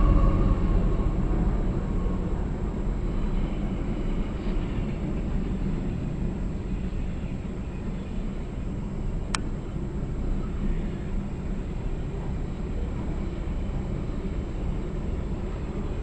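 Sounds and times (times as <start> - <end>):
locomotive horn tones: 0.0 - 3.7
freight train rumbling past: 0.0 - 16.0.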